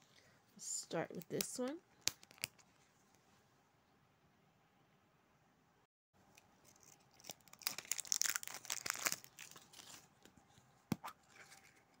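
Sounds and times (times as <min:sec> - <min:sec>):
plastic film tearing and crinkling: 0:06.7 - 0:10.1.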